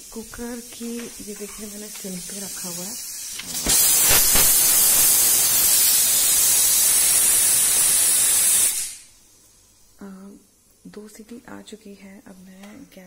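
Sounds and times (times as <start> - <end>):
pressure cooker whistle hissing steam: 2.2 - 9.1.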